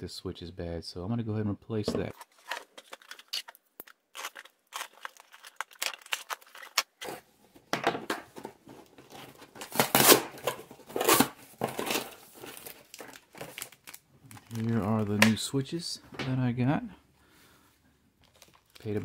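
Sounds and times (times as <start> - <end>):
plastic bag crinkling: 2.1 - 7.1, 11.0 - 15.2, 18.2 - 19.0.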